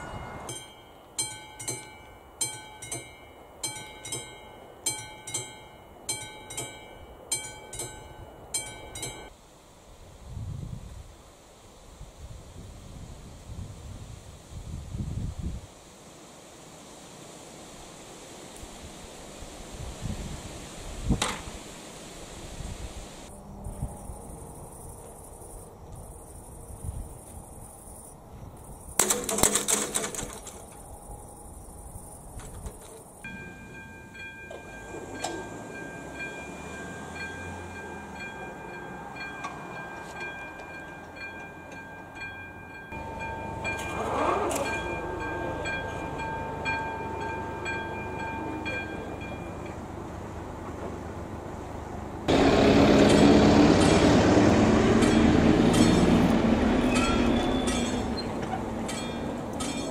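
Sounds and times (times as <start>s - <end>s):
level crossing warning bell: 0.0s - 9.4s, 33.2s - 50.6s, 52.3s - 59.9s
outdoor background noise: 0.0s - 59.9s.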